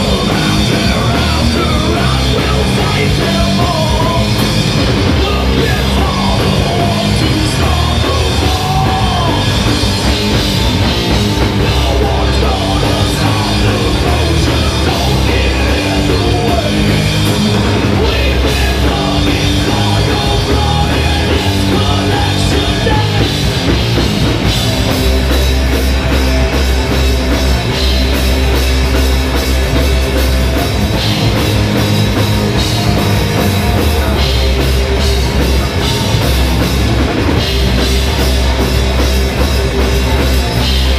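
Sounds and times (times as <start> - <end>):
bass guitar: 0.0 - 40.9
crowd: 0.0 - 40.9
drum kit: 0.0 - 40.9
electric guitar: 0.0 - 40.9.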